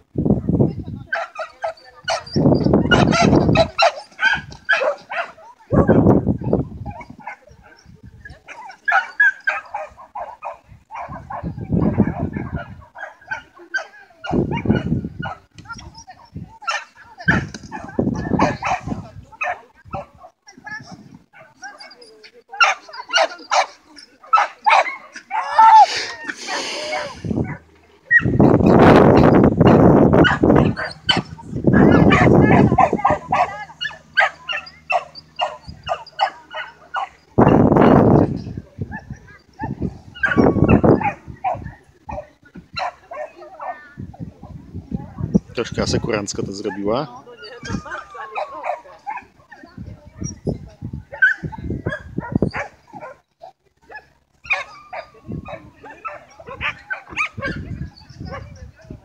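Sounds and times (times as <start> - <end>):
dog barking: 1.1 - 6.1, 8.5 - 15.4, 16.6 - 21.8, 22.6 - 25.8, 29.2 - 37.6, 38.9 - 43.8, 51.1 - 53.2, 53.9 - 58.6
dog yapping: 24.4 - 26.0, 30.2 - 37.6, 47.4 - 49.6, 53.9 - 58.4.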